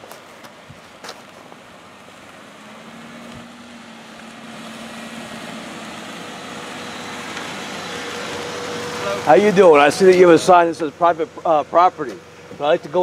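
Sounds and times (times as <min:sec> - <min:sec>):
car approaching: 0:00.0 - 0:13.0.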